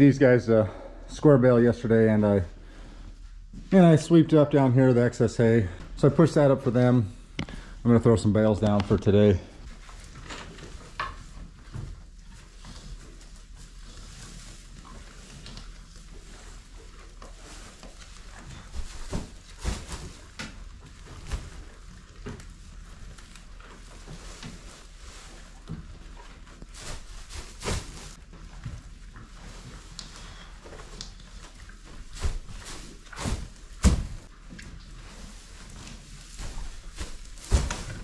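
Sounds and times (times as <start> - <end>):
footsteps on hay bales: 11.5 - 38.0
hay rustling: 12.4 - 38.0
hay bales thudding on floor: 17.1 - 23.2, 23.8 - 28.8, 30.4 - 34.4, 35.0 - 38.0.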